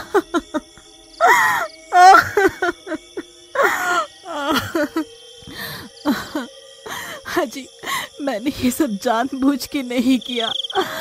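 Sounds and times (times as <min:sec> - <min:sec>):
woman sobbing: 0:00.0 - 0:08.3, 0:10.7 - 0:11.0
background music drone: 0:00.0 - 0:11.0.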